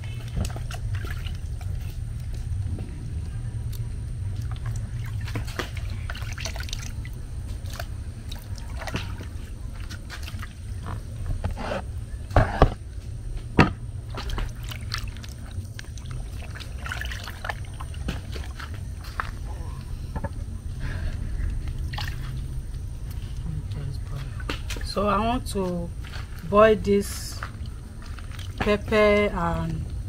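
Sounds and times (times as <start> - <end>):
hands sloshing food in water: 0.0 - 2.6, 3.6 - 11.6, 13.6 - 20.0, 21.4 - 23.4, 27.0 - 29.2.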